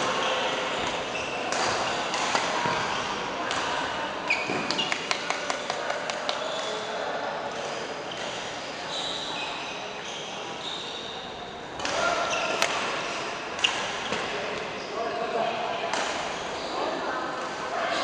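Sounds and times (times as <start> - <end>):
shoes squeaking on court floor: 0.2 - 3.0, 4.2 - 5.5, 7.6 - 15.0.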